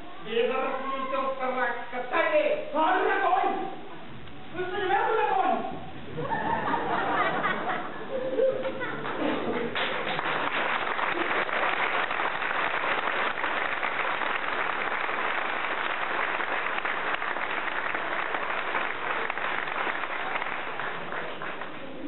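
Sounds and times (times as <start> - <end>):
audience applauding: 8.6 - 22.0.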